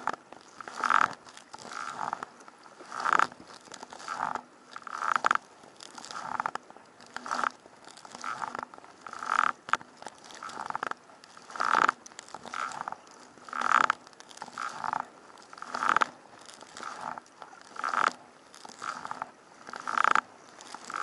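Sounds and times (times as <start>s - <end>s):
kayak paddle strokes splashing: 0.0s - 21.0s.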